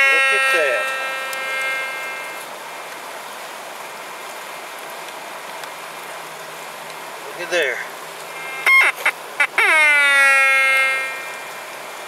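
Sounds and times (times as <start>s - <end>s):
metal detector tone: 0.0s - 2.4s, 8.4s - 9.0s
river water rushing: 0.0s - 9.6s, 10.4s - 12.0s.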